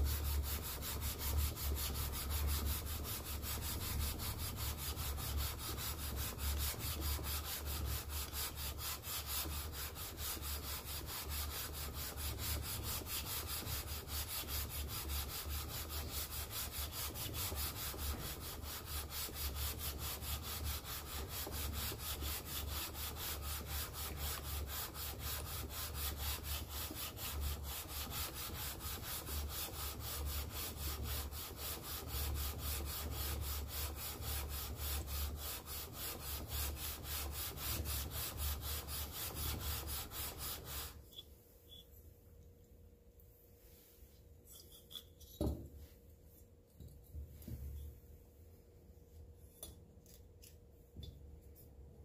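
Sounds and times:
metal rasping on wet sandpaper: 0:00.0 - 0:41.0.

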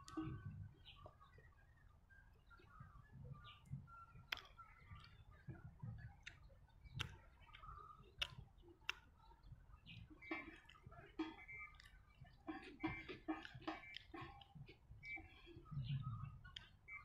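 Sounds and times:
chewing with wet mouth clicks: 0:02.4 - 0:17.0.

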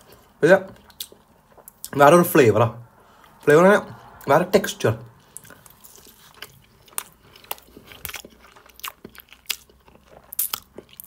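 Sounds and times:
crunchy chewing: 0:05.3 - 0:11.0.

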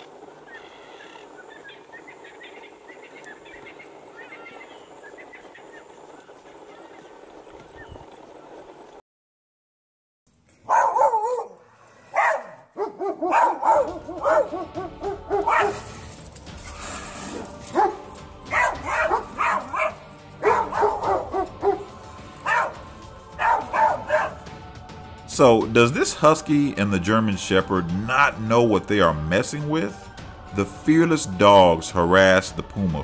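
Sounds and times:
dogs barking: 0:10.6 - 0:16.2, 0:17.2 - 0:24.6.

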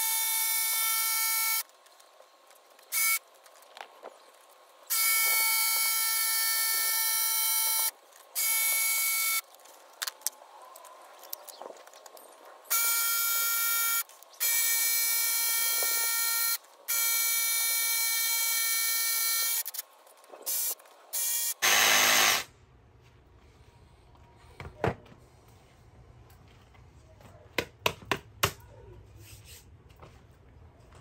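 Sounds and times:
jigsaw cutting vinyl plank: 0:21.6 - 0:22.5.

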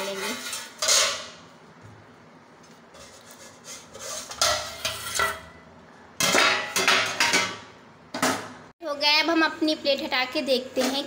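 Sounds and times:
steel cookware clinking: 0:00.0 - 0:01.3, 0:04.3 - 0:05.6.

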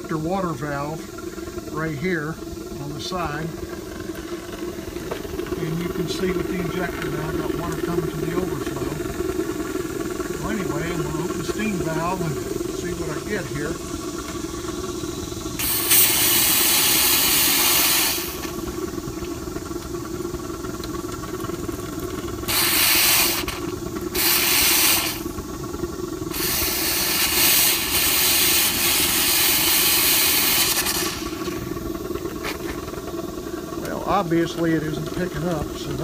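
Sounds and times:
burner humming: 0:00.0 - 0:36.0
steam hissing: 0:00.0 - 0:36.0.

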